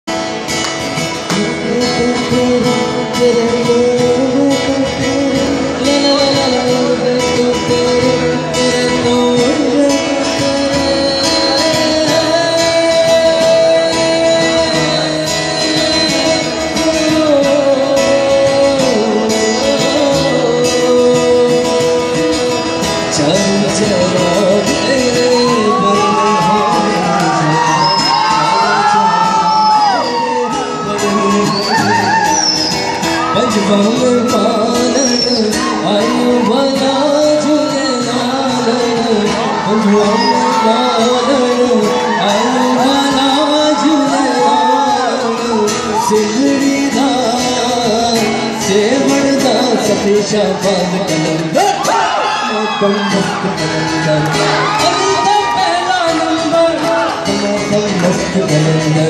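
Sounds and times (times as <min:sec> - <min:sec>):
guitar accompaniment: 0:00.0 - 0:59.0
man singing: 0:01.0 - 0:59.0
audience whooping: 0:25.1 - 0:38.6, 0:39.2 - 0:46.5, 0:51.6 - 0:57.2.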